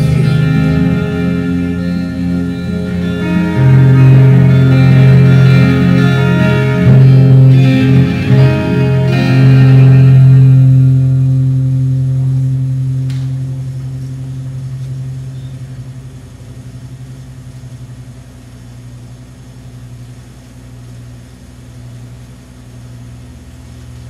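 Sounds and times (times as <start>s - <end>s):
acoustic guitar chord ringing: 0.0s - 16.3s
steady low hum: 0.0s - 24.0s.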